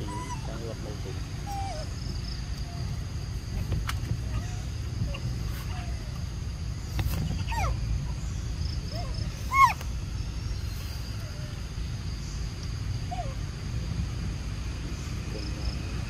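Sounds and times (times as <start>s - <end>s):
faint insect drone: 0.0s - 16.0s
monkeys squeaky calls: 9.0s - 9.8s.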